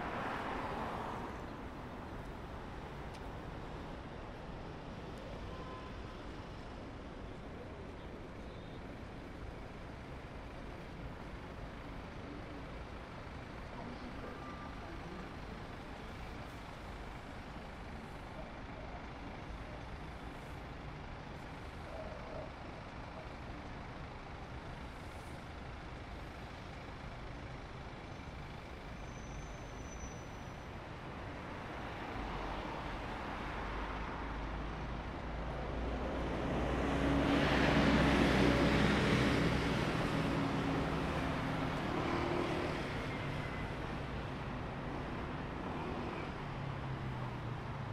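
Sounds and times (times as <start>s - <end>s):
city traffic hum: 0.0s - 47.9s
heavy vehicle engine passing: 35.8s - 44.5s.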